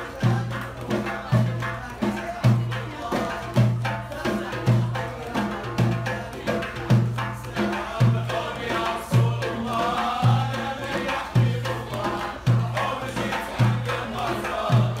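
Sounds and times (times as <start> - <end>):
deep drum beat: 0.0 - 15.0.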